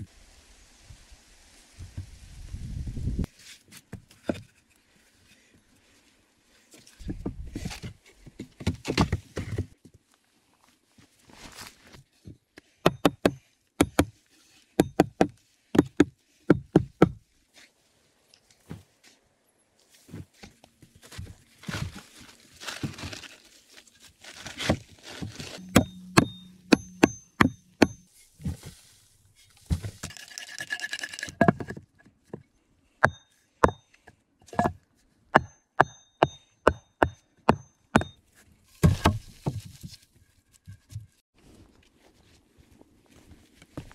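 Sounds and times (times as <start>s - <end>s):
digging in sandy soil: 10.7s - 30.0s
knocks on wooden logs: 14.8s - 17.2s
hatchet blows on poles: 25.5s - 28.1s.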